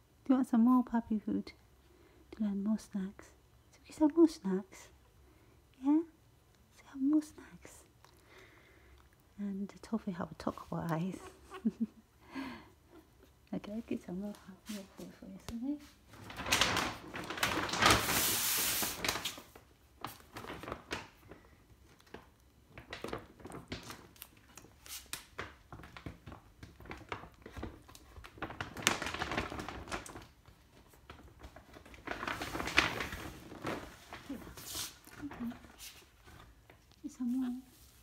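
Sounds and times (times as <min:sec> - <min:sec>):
rustling and crinkling: 0:12.9 - 0:38.0.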